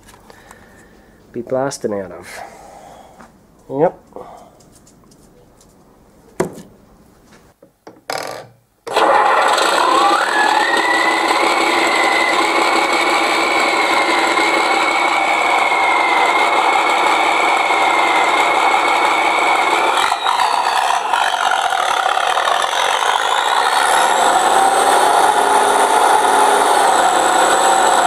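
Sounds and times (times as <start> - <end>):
high turbo whine: 8.9 - 28.0
truck engine sound from small speaker: 17.8 - 28.0.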